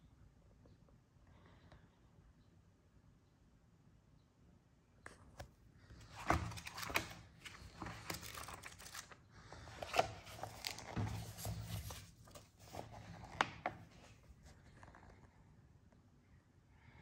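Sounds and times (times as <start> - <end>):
paper pages rustling and turning: 5.9 - 15.0.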